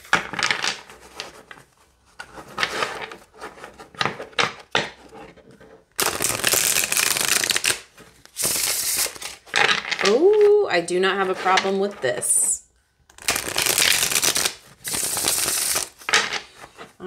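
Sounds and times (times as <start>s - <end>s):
cards rustling: 6.0s - 10.5s, 13.2s - 17.0s
riffle shuffle of cards: 13.2s - 17.0s.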